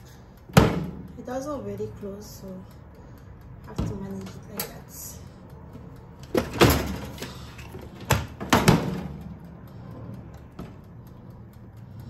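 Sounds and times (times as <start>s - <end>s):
oven glass door knocking shut: 8.1s - 9.1s.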